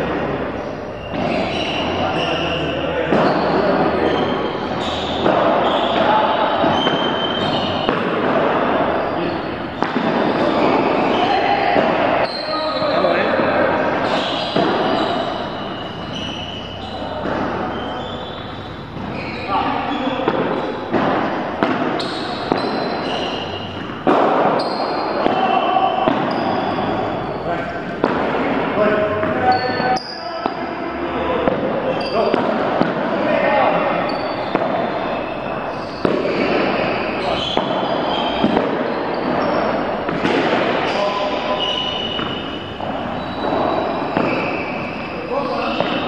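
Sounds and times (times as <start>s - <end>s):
shoe squeaks: 0.0s - 27.8s, 28.8s - 32.4s, 33.3s - 46.0s
players' voices: 0.0s - 46.0s
padel ball struck by rackets: 4.6s - 9.0s, 9.6s - 12.2s, 14.0s - 19.4s, 20.2s - 26.9s, 27.9s - 29.4s, 31.4s - 33.2s, 34.1s - 35.1s, 35.9s - 41.0s, 41.8s - 45.0s.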